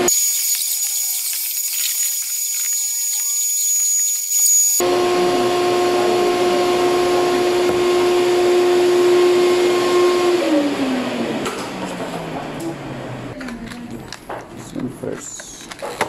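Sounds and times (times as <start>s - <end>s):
vacuum cleaner running: 0.0s - 13.3s.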